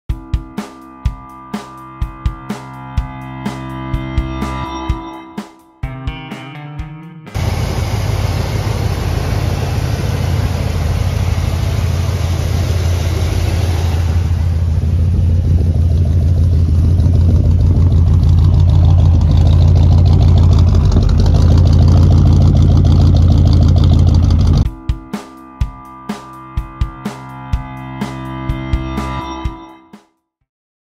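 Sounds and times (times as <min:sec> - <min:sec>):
car engine idling loudly: 0:07.4 - 0:24.7.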